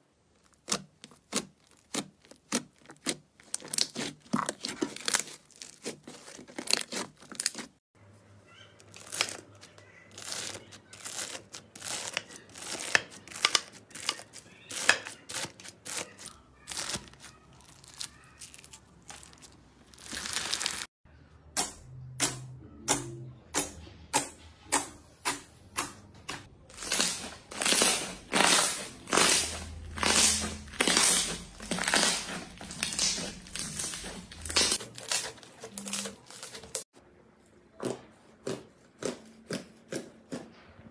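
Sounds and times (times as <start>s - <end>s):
slime crackling and squelching: 0.1s - 7.9s, 8.5s - 21.0s, 26.7s - 36.9s
bead-filled slime crunching: 0.3s - 7.9s, 8.8s - 20.9s, 26.7s - 36.9s.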